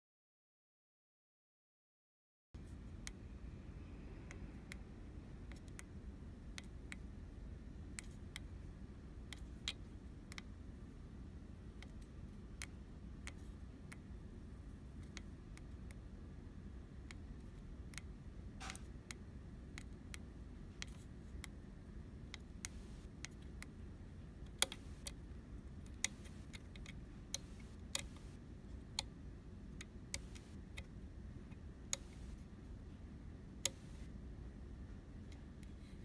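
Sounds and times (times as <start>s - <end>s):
low steady hum: 2.6s - 36.0s
switches and buttons clicking: 17.0s - 32.6s, 33.6s - 34.2s.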